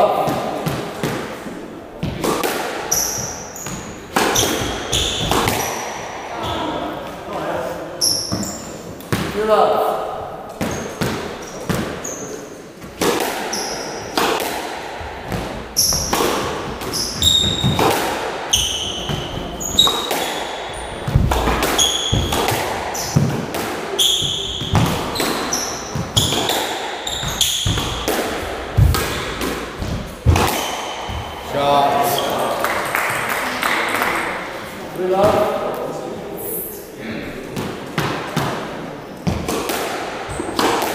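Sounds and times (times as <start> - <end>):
squash ball hits echoing: 0.0 - 35.7, 37.4 - 40.9
shoes squeaking on wooden floor: 2.9 - 5.8, 8.0 - 9.0, 10.6 - 14.3, 15.0 - 32.6, 40.3 - 40.7.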